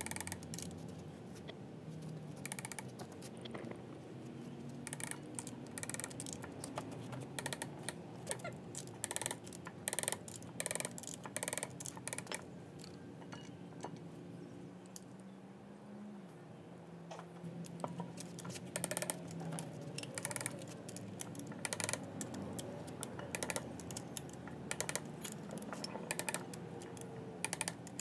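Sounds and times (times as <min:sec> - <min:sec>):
socket ratchet clicking: 0:00.0 - 0:00.7, 0:02.4 - 0:02.9, 0:04.9 - 0:12.9, 0:17.7 - 0:28.0.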